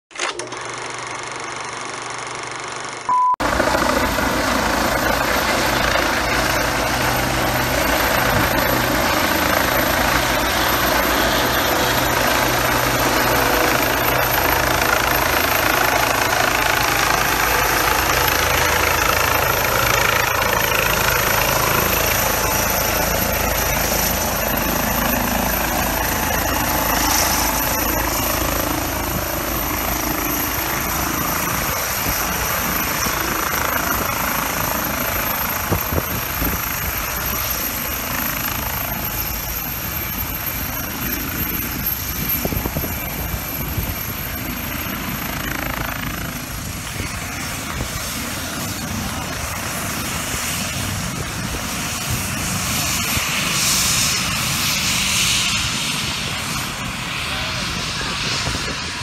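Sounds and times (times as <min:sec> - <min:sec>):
helicopter rotor and engine: 0:00.1 - 0:59.0.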